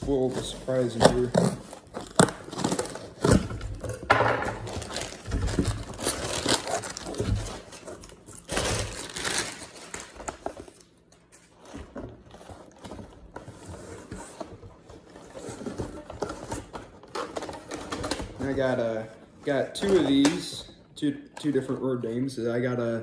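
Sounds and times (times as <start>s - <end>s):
packing paper crumpling: 4.6s - 11.0s.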